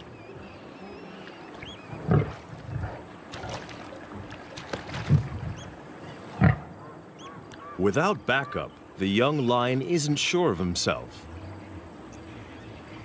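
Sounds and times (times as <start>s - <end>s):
faint bird chirps: 0.0s - 2.0s.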